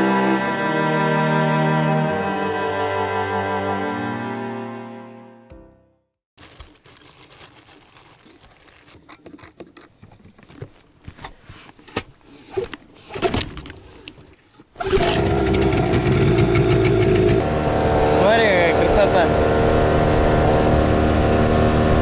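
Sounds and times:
outboard motor running: 14.8 - 22.0.

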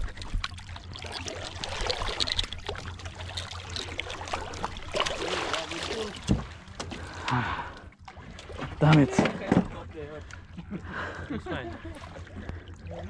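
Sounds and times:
water splashing against boat: 0.0 - 13.0.

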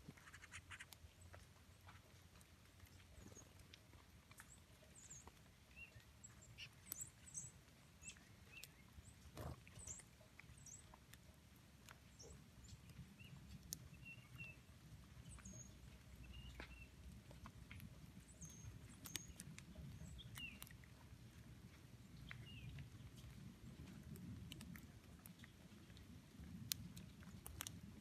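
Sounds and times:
soft ticks: 0.1 - 28.0
songbird chip notes and calls: 4.4 - 11.0, 12.0 - 17.1, 17.7 - 20.9, 22.0 - 23.1.

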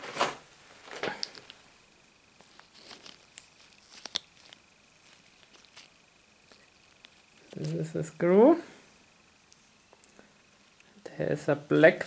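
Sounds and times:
gloves and box rustling: 2.4 - 7.9.

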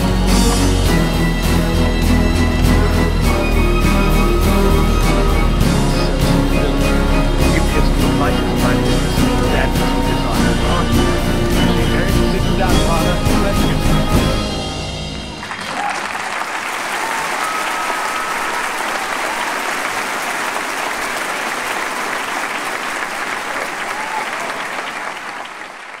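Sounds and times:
audience applause: 0.0 - 14.4, 15.2 - 26.0
string ensemble playing: 0.0 - 15.7.

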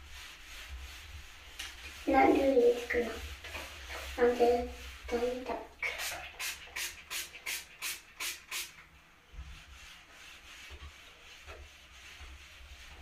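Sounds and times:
sponge rubbing on glass: 0.0 - 7.4, 9.3 - 13.0
spray bottle squirting: 5.8 - 8.8.

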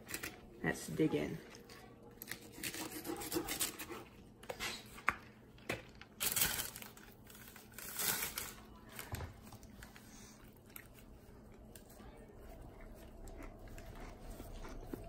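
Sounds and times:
fork scraping paper plate: 2.2 - 4.9.

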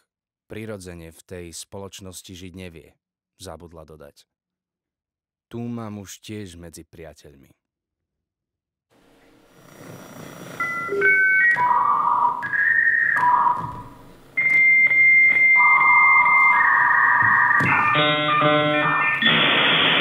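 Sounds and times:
loud steady tone: 10.6 - 20.0.

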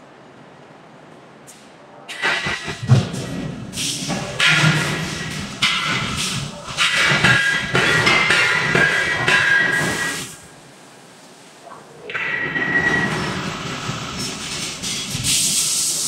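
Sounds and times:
hissing forging machinery: 2.1 - 10.6, 12.1 - 16.0.

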